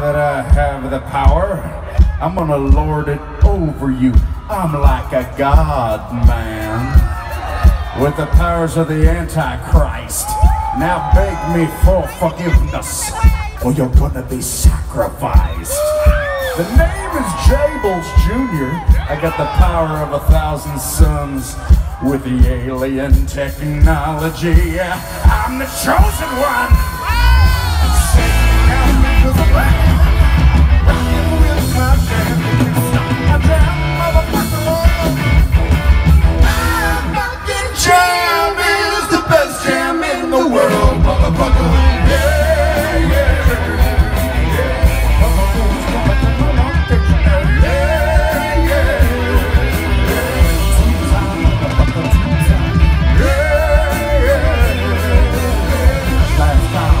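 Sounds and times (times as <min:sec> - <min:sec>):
bass guitar: 0:00.0 - 0:57.0
drums: 0:00.0 - 0:57.0
sung and shouted vocals: 0:03.5 - 0:35.4, 0:36.4 - 0:57.0
electric guitar: 0:26.7 - 0:37.8, 0:39.2 - 0:57.0.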